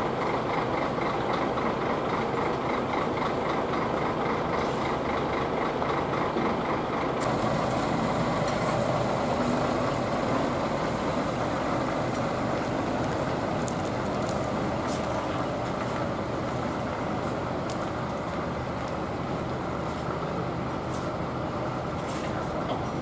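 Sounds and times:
truck diesel engine passing: 0:00.3 - 0:23.0.

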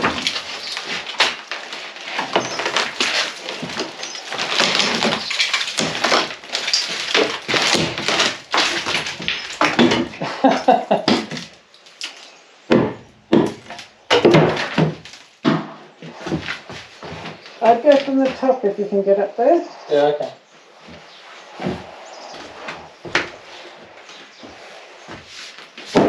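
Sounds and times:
loud knocks and clatters: 0:00.0 - 0:17.4
plaster scraping and crumbling: 0:00.0 - 0:18.6, 0:20.6 - 0:26.0
wood cracking and splintering: 0:00.0 - 0:19.0, 0:20.7 - 0:26.0.

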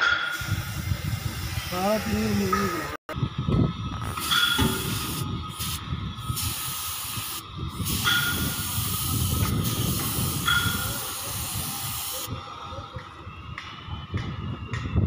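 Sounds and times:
paint spray gun hissing: 0:00.3 - 0:02.3, 0:04.1 - 0:12.3
low rumble: 0:00.5 - 0:10.8.

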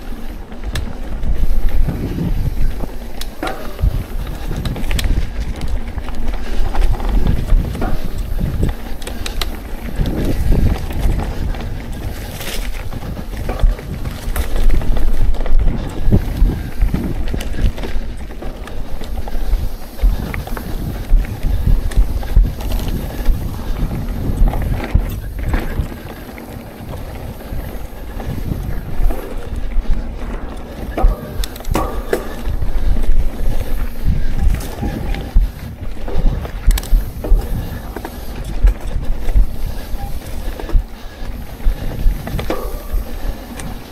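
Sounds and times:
bike rattling and knocking: 0:00.0 - 0:43.9
tyres rumbling over dirt: 0:00.0 - 0:43.9
wind noise on microphone: 0:00.0 - 0:43.9.

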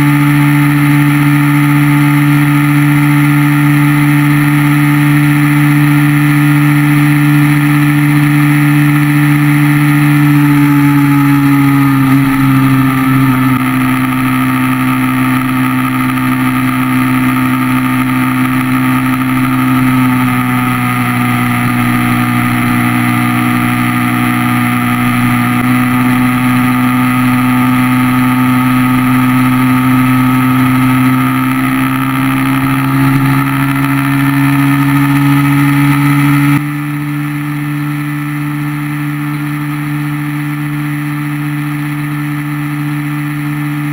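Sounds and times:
motorcycle engine cruising: 0:00.0 - 0:43.9.

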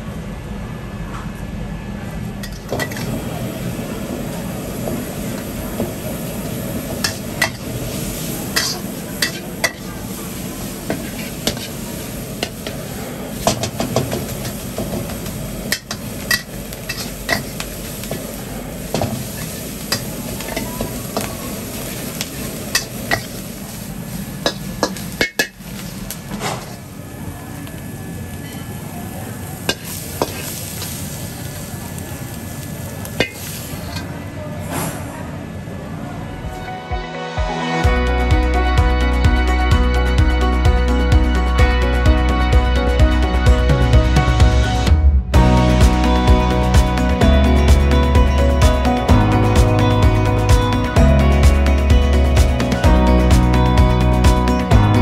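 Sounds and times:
food sizzling in a wok: 0:02.4 - 0:34.1
metal spatula scraping wok: 0:06.9 - 0:18.2, 0:19.0 - 0:26.9, 0:29.7 - 0:31.0.

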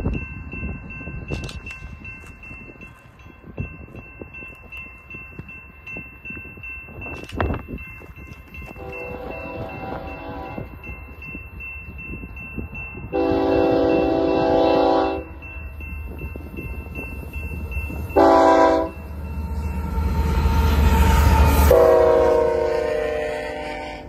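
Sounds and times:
train wheel noise: 0:00.0 - 0:24.0
locomotive air horn blasts: 0:08.8 - 0:10.7, 0:13.1 - 0:15.4, 0:18.2 - 0:19.0, 0:21.7 - 0:24.0.

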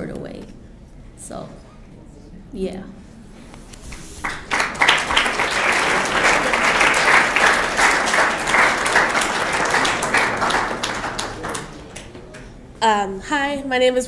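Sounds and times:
audience applauding: 0:03.9 - 0:12.7.

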